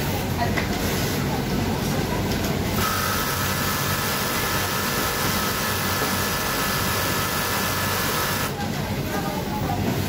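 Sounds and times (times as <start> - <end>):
industrial sewing machine running: 2.8 - 8.6.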